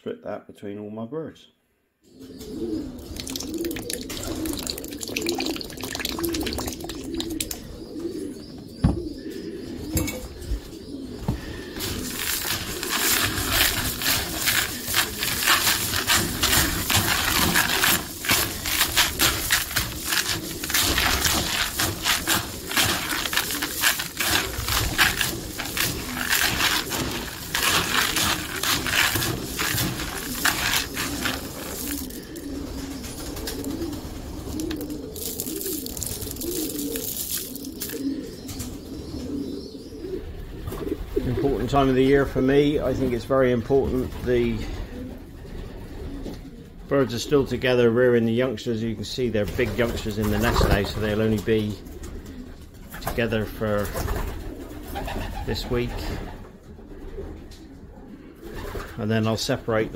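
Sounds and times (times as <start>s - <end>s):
pigeons cooing: 2.0s - 59.9s
grain rustling in a bucket: 3.0s - 7.6s, 11.5s - 38.2s.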